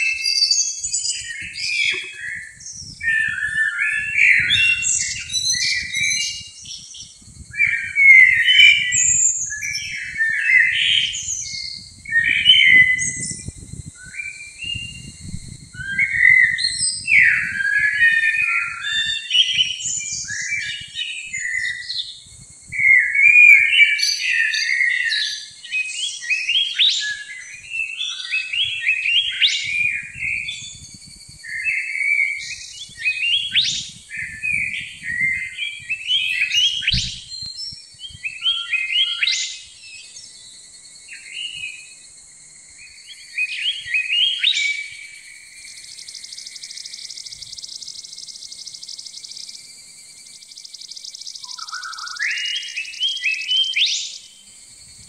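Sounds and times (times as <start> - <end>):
songbirds singing: 0.0 - 55.0.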